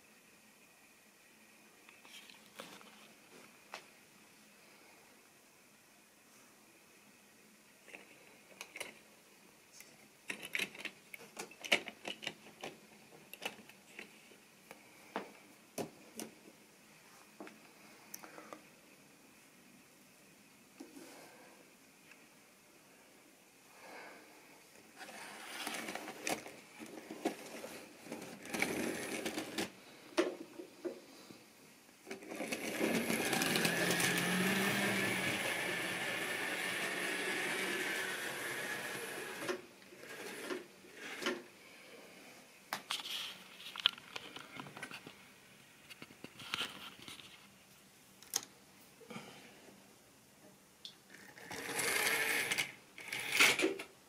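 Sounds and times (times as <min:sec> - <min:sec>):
small electric motor whirring: 0:32.6 - 0:41.2, 0:51.3 - 0:53.7.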